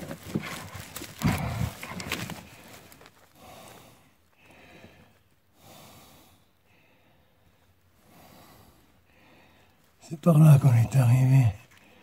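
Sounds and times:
handling clicks and rustles: 0.0s - 3.4s
person breathing: 0.5s - 9.9s, 11.7s - 12.0s.

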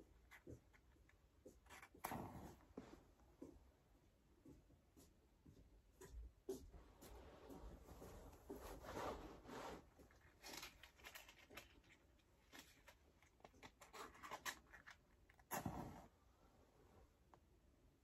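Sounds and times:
matches rustling: 9.8s - 15.9s.

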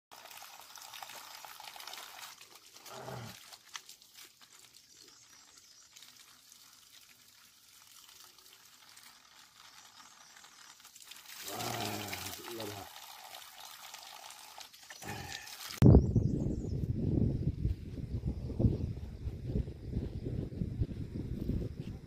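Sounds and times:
water trickling from pipe: 0.1s - 15.8s.

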